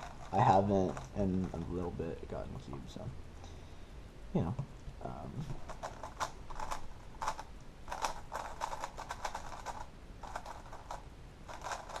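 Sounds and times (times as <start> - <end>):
puzzle cube clicking: 5.5 - 12.0.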